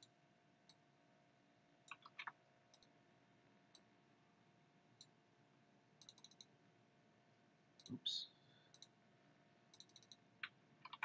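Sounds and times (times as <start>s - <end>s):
computer mouse clicks: 1.9s - 3.0s, 6.0s - 6.5s, 8.7s - 8.9s, 9.7s - 11.0s.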